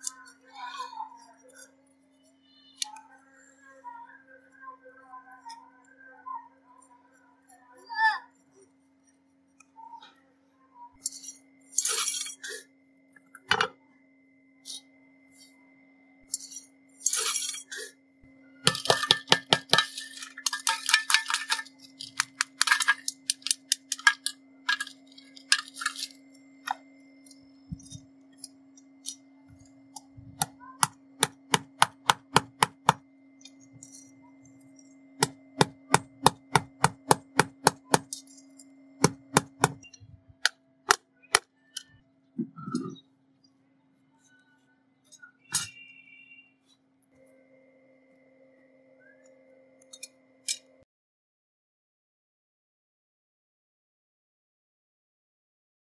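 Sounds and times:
small hammer tapping metal: 0:18.7 - 0:26.8, 0:29.9 - 0:34.0, 0:35.2 - 0:38.4, 0:39.0 - 0:41.5.

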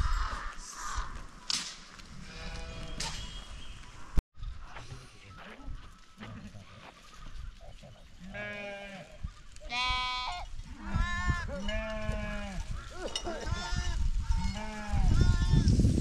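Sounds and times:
sheep bleating: 0:08.2 - 0:12.6.

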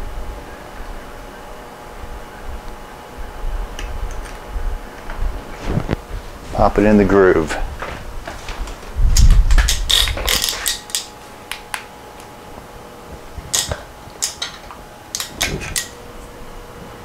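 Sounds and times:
rustling rumble on microphone: 0:02.6 - 0:10.2.

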